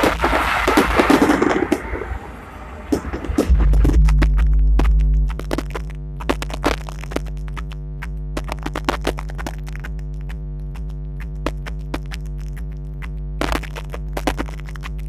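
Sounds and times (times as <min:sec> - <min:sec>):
fireworks bursting: 0:00.0 - 0:05.8
synthesizer music: 0:02.2 - 0:05.9.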